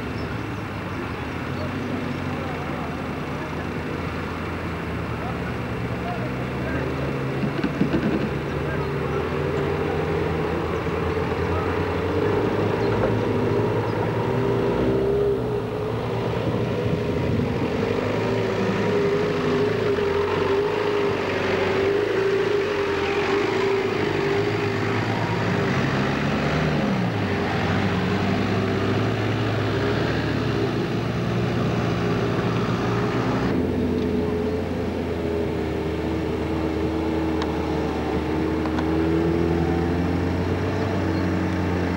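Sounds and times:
off-road vehicle engines droning: 0.0 - 41.9.

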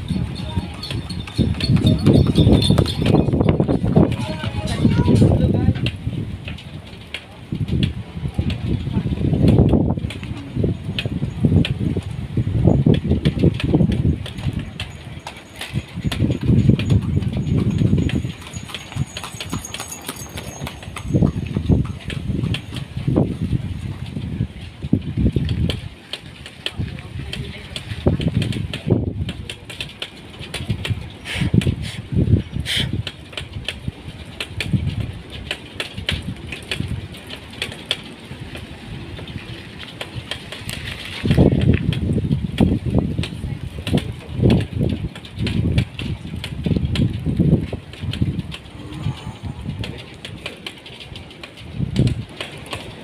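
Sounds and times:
horse hooves clip-clopping on pavement: 0.0 - 53.0
low rumble: 46.8 - 52.2.

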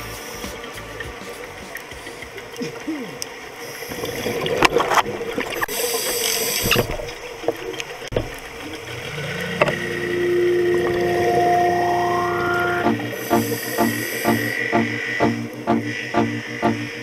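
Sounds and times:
regulator bubbles hissing: 0.0 - 17.0
low droning musical note: 8.6 - 17.0.

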